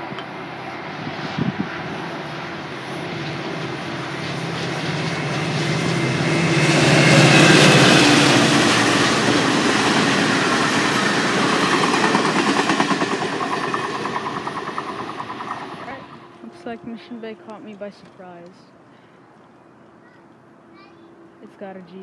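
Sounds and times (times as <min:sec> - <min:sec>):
diesel locomotive engine: 0:00.0 - 0:19.8
wheels clacking over rail joints: 0:06.3 - 0:16.3.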